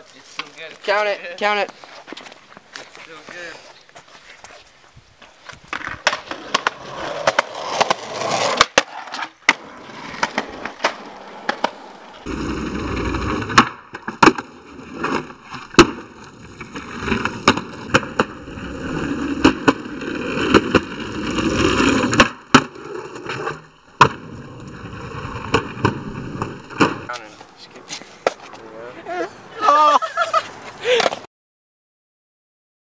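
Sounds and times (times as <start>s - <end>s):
skateboard wheels rolling on concrete: 0.0s - 31.3s
skateboard clacks: 5.7s - 12.3s, 13.1s - 28.6s.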